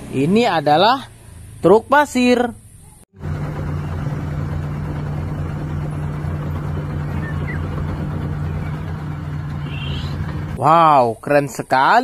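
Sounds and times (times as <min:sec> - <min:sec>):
dump truck engine running: 0:03.2 - 0:10.7.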